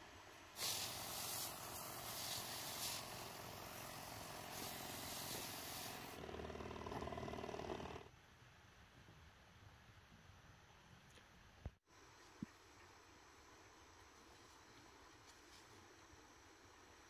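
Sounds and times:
sprayer hissing spray: 0.5 - 6.2.

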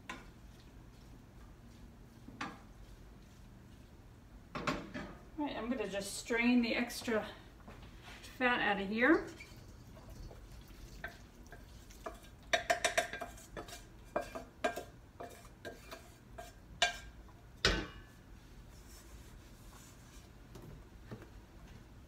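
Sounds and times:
metal pan and utensil clattering: 11.0 - 18.1.

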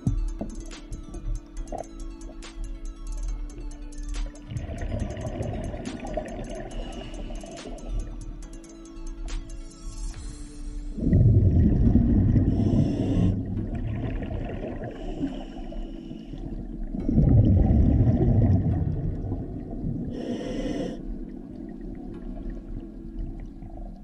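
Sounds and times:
hissing inhalations through regulator: 0.0 - 13.8, 14.8 - 16.6, 20.1 - 21.3
exhaled bubbles rumbling underwater: 4.4 - 8.2, 11.0 - 24.0.

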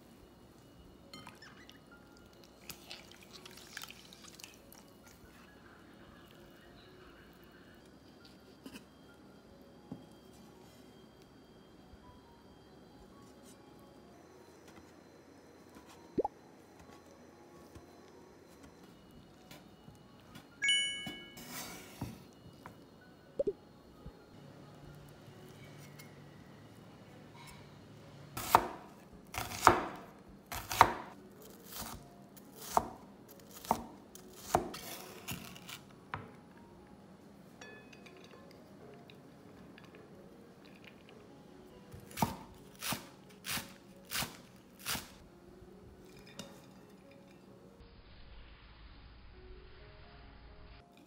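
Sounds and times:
knife chopping on wooden board: 28.4 - 28.8, 29.4 - 31.1.

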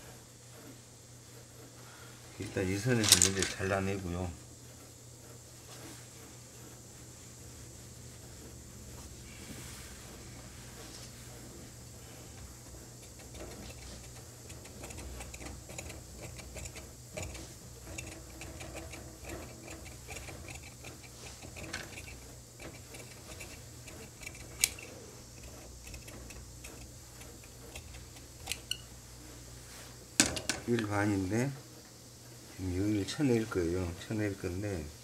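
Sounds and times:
shears snipping fabric: 12.5 - 28.8.

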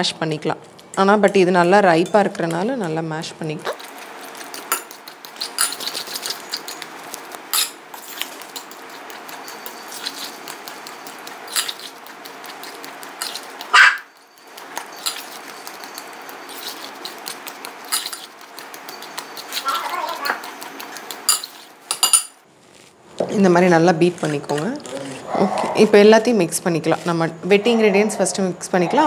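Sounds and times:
fork scraping glass bowl: 3.8 - 22.3.

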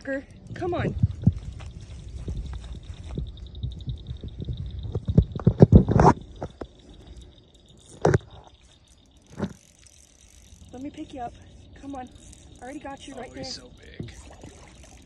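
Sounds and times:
microphone handling rumble: 0.4 - 6.7.

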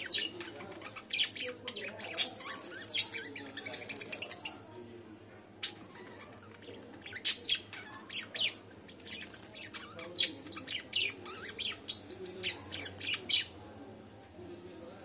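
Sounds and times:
small birds chirping: 0.0 - 4.8, 5.4 - 13.8.

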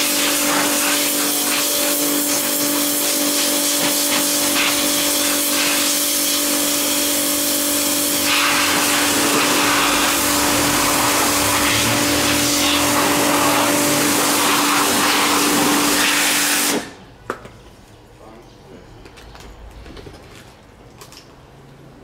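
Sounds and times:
air blower running: 0.0 - 17.1.

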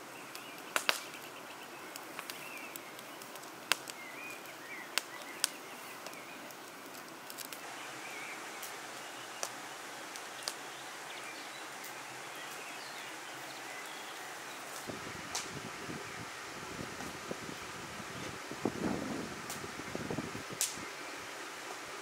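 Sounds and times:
birds chirping: 0.0 - 14.9
steady outdoor hiss: 0.0 - 22.0
twig fire crackling and popping: 0.0 - 22.0.

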